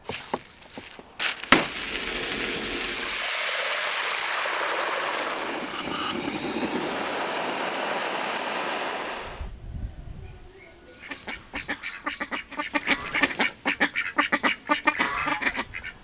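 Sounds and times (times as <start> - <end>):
potatoes sizzling in hot oil: 1.3 - 8.8.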